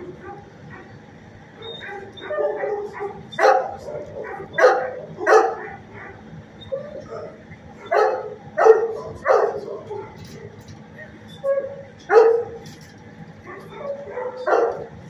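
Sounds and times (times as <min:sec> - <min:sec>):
dog barking: 0:00.1 - 0:00.9, 0:01.6 - 0:10.3, 0:11.4 - 0:12.6, 0:13.4 - 0:15.0
dog yipping: 0:01.6 - 0:10.3, 0:11.3 - 0:12.6, 0:13.4 - 0:14.9.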